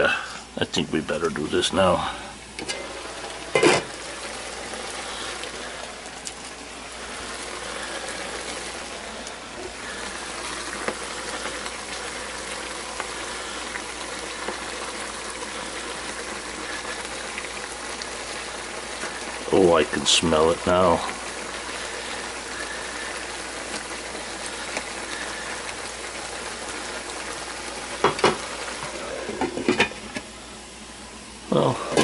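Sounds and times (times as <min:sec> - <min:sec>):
meat and onion sizzling in skillet: 0:00.0 - 0:32.0.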